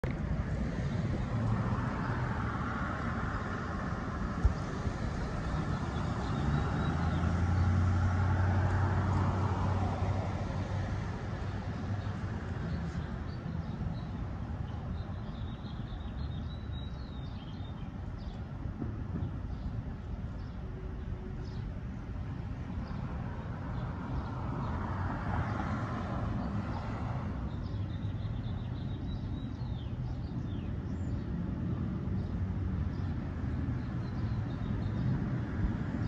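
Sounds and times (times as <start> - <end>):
car engine passing: 4.8 - 11.5.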